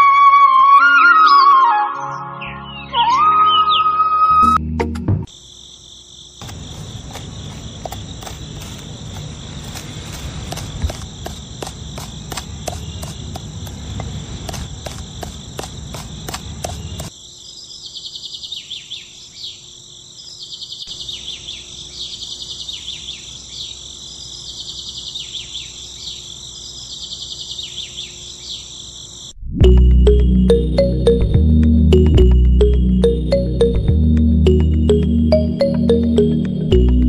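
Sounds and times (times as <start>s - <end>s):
insects chirring: 5.2s - 31.1s
small clicks and scraping: 6.4s - 17.1s.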